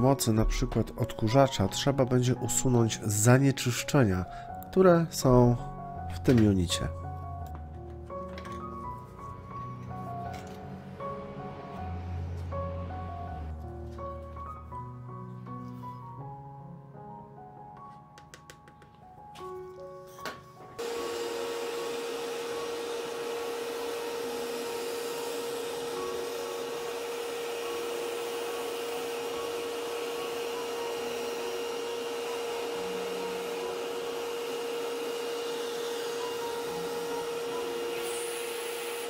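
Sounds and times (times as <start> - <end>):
vacuum cleaner running: 20.8 - 39.0.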